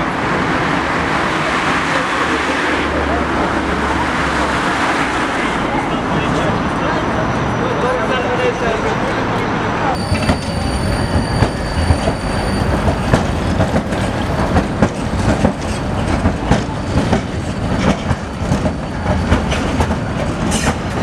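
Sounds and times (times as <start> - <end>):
tram rumbling past: 0.0 - 21.0
wheels clacking on rails: 9.0 - 21.0.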